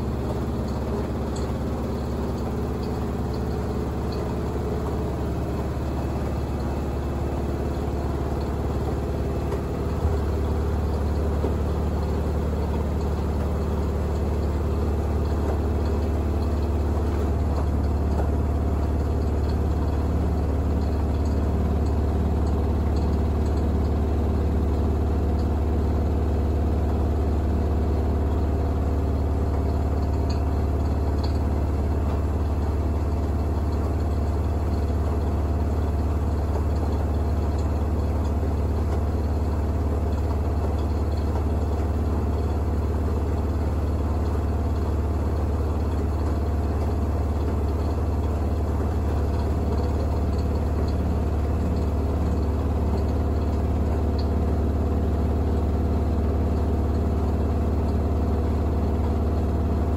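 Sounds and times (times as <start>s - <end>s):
washing machine spinning: 0.0s - 59.9s.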